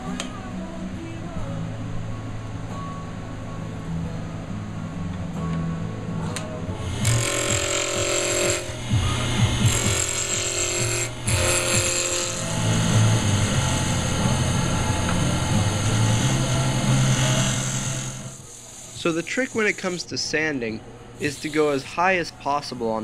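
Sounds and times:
lathe motor hum: 6.8 - 20.1
turning tool cutting wood hissing: 6.8 - 20.1.

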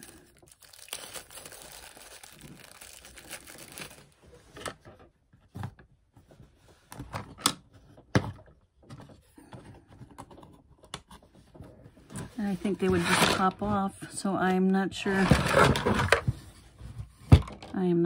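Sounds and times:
plastic bag crinkling: 0.0 - 4.2.

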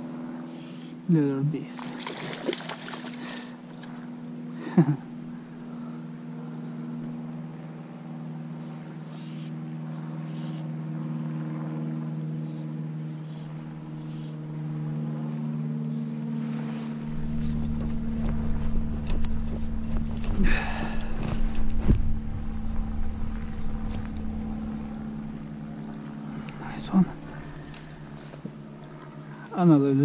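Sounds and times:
engine droning: 0.0 - 30.0
short rustle: 16.3 - 24.9
deep rumble: 17.0 - 29.0
sharp clicks: 17.3 - 21.8.

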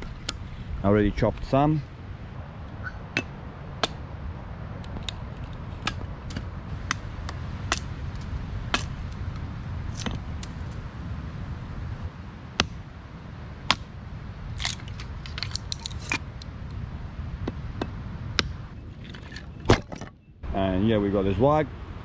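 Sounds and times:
low rumble: 0.0 - 22.0
hatchet splitting wood: 5.8 - 7.9, 8.7 - 9.0.

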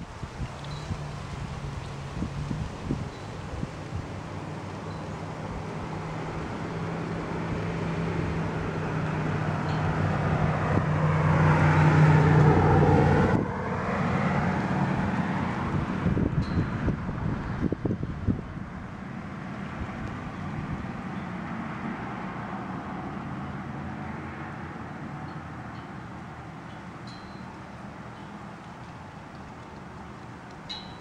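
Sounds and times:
wind buffeting microphone: 0.0 - 21.4
vehicle engine and road noise: 0.0 - 31.0.

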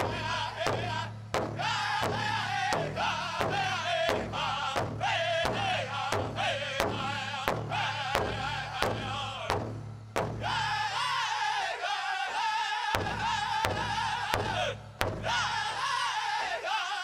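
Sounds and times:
voices singing in unison: 0.0 - 9.6, 10.4 - 17.0
big drum beating: 0.0 - 11.1, 13.0 - 15.8.

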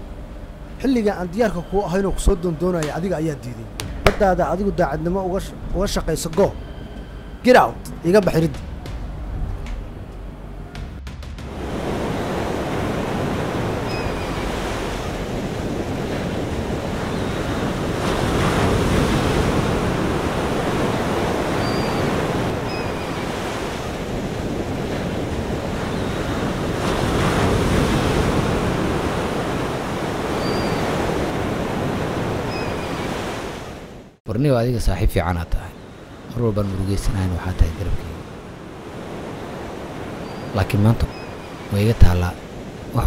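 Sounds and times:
wind: 0.0 - 43.0
sea waves breaking on shore: 11.5 - 34.2, 37.1 - 43.0.

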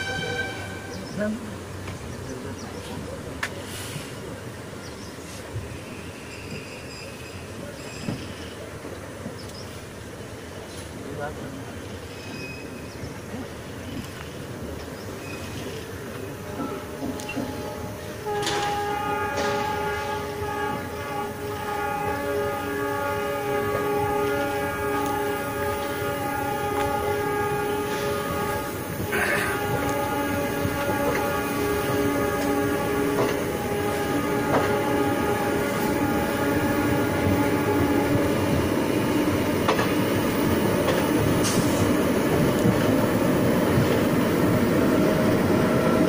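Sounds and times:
train horn held tone: 0.0 - 1.1, 15.4 - 41.8
train running noise: 0.0 - 46.0.

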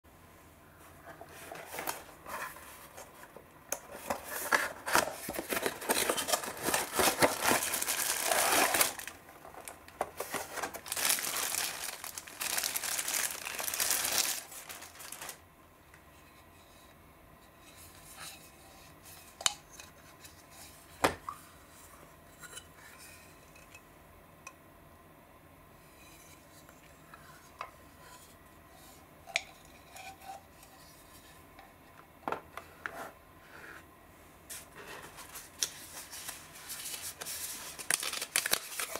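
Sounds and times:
plastic and cardboard crinkling: 1.1 - 15.4, 34.5 - 38.9.

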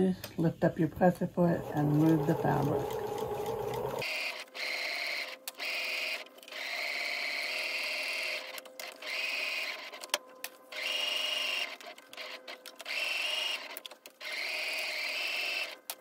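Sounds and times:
sewing machine stitching: 1.5 - 4.1.

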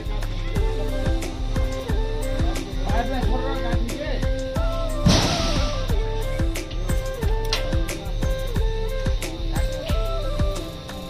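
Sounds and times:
deep drum hits: 4.7 - 7.1.

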